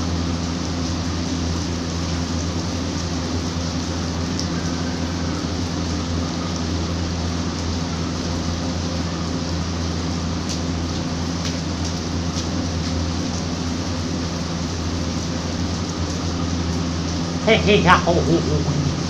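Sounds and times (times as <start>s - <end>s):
low steady hum: 0.0s - 19.0s
rain falling on a rooftop: 0.0s - 19.0s.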